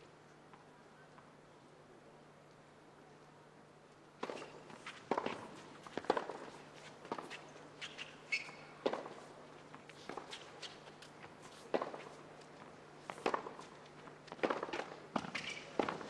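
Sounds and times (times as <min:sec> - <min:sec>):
tennis ball bouncing: 0:04.2 - 0:09.2, 0:13.1 - 0:16.0
shoe scuffs on court: 0:04.2 - 0:12.3, 0:13.0 - 0:16.0
shoe squeak: 0:07.2 - 0:08.9, 0:15.2 - 0:15.9.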